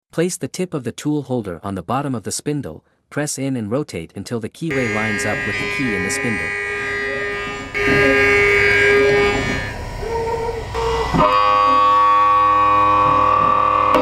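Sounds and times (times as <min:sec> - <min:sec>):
milling machine cutting whine: 0:04.7 - 0:14.0.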